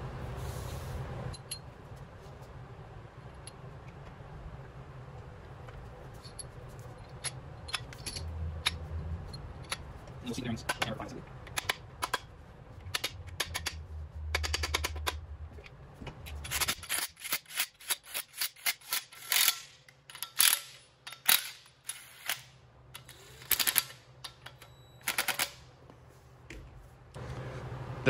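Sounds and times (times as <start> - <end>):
metal parts clinking on engine block: 6.2 - 9.8
ratchet clicking: 16.3 - 22.4.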